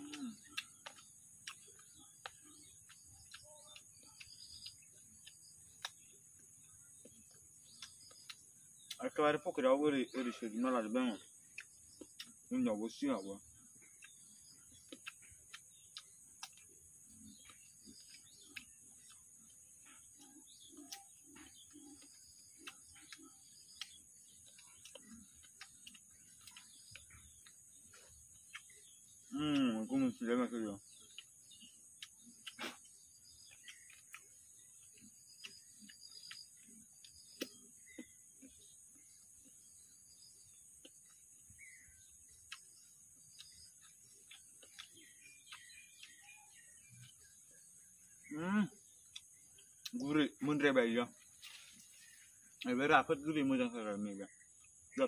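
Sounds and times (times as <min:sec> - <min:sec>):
person chewing crunchy fruit: 0:00.0 - 0:09.1, 0:11.2 - 0:12.6, 0:13.3 - 0:30.1, 0:30.8 - 0:52.8.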